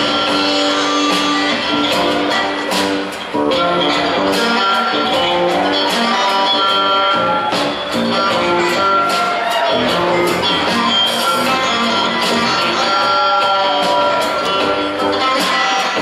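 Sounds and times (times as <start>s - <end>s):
electric guitar: 0.0s - 16.0s
upright bass: 0.0s - 16.0s.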